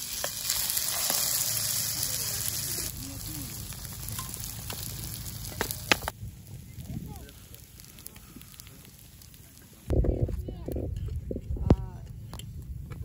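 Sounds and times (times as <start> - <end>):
bread sizzling in hot oil: 0.0 - 9.9.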